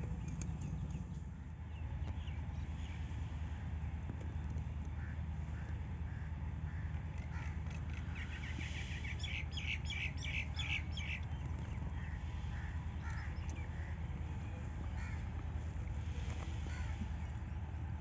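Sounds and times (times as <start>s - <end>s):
steady low rumble: 0.0s - 18.0s
birds calling: 4.9s - 17.7s.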